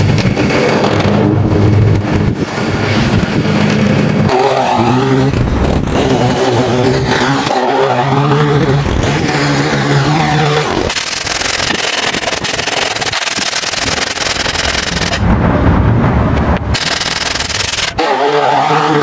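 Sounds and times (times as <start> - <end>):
lawn mower engine running: 8.3 - 15.2, 16.7 - 18.0.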